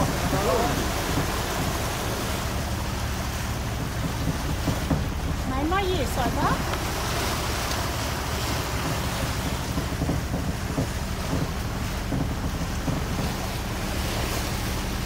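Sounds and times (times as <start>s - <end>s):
choppy sea water rushing: 0.0s - 15.0s
low rumble: 0.0s - 15.0s
wind buffeting microphone: 0.0s - 15.0s.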